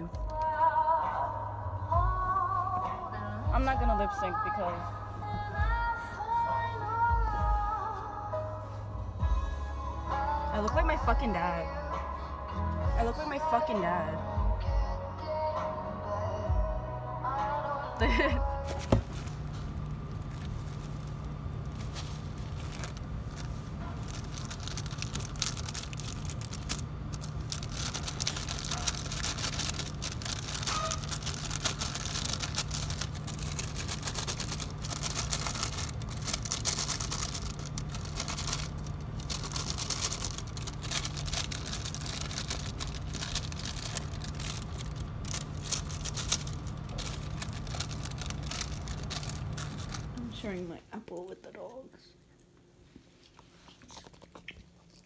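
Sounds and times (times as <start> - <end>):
steady low hum: 0.0 - 55.0
paper and plastic bags rustling: 18.2 - 50.4.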